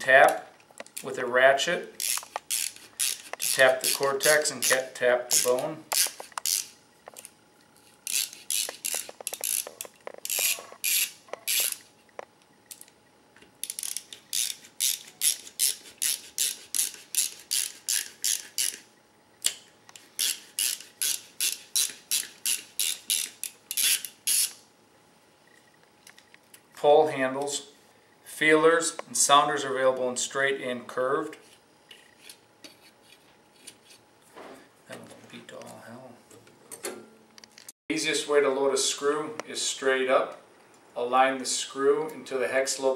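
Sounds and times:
ratcheting handle clicking: 0:02.0 - 0:07.3, 0:08.0 - 0:11.8.

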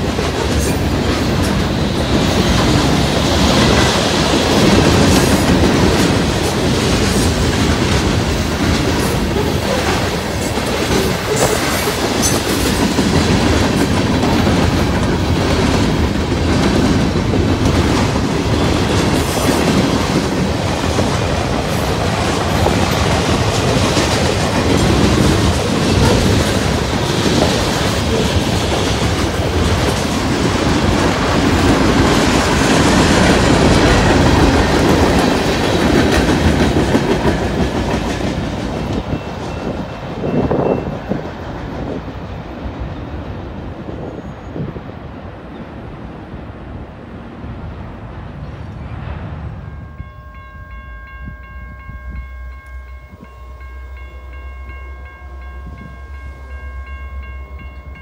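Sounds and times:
wheels clicking over rail joints: 0:00.0 - 0:41.8
freight train wheels rumbling: 0:00.0 - 0:58.0.

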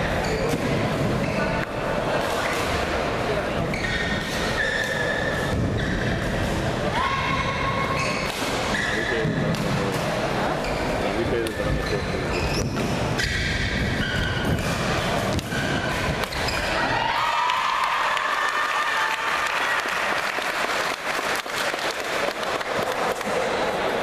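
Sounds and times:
shoes squeaking on floor: 0:00.2 - 0:01.7, 0:03.6 - 0:06.4, 0:07.8 - 0:09.5, 0:10.6 - 0:16.8
spectators clapping: 0:17.1 - 0:23.6.

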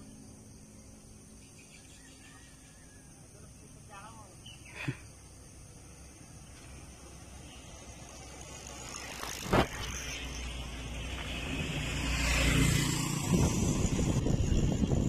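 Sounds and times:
vehicle passing on road: 0:05.5 - 0:15.0
wind buffeting microphone: 0:12.8 - 0:15.0.

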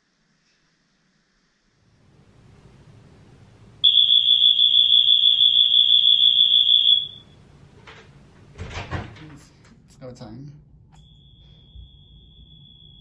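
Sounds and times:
high-pitched alarm horn tone: 0:03.8 - 0:07.4, 0:11.0 - 0:13.0.

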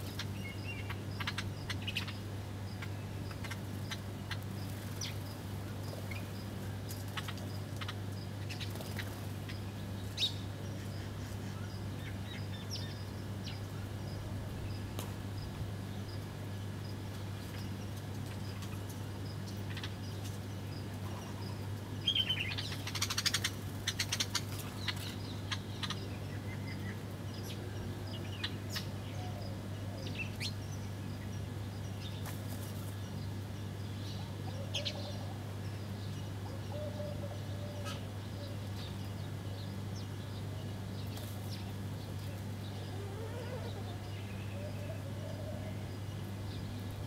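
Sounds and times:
sparrows chirping: 0:00.0 - 0:47.0
steady low hum: 0:00.0 - 0:47.0
wings fluttering: 0:06.9 - 0:09.5, 0:32.2 - 0:33.0.

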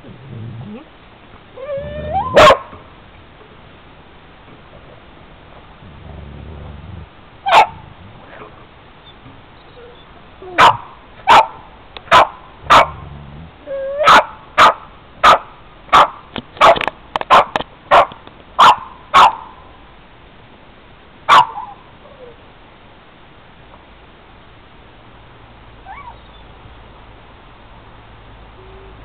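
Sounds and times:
dog barking: 0:02.2 - 0:02.8, 0:07.5 - 0:08.5, 0:10.6 - 0:13.0, 0:14.0 - 0:19.5, 0:21.3 - 0:21.8.

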